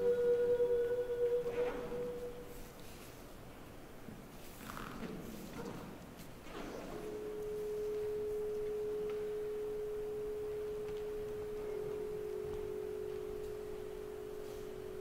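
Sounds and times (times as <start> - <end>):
lower pure tone: 0.0 - 2.9, 6.5 - 15.0
steady pure tone: 0.0 - 4.1, 6.5 - 15.0.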